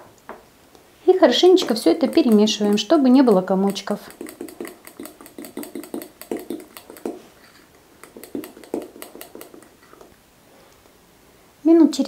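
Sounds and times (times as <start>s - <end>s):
utensil clicking against glass: 1.4s - 10.1s.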